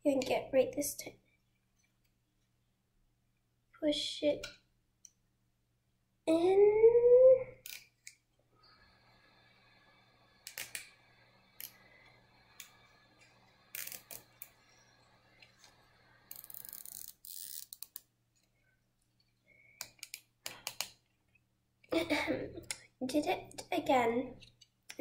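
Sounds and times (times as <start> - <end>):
cable tie ratcheting zip: 13.7 - 14.6, 16.3 - 18.1.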